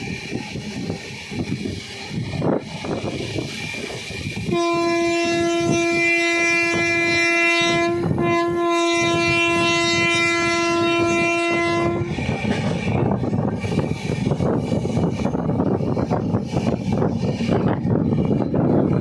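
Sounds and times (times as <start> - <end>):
train wheels clattering on rails: 0.0 - 19.0
train horn blasts: 4.4 - 12.3.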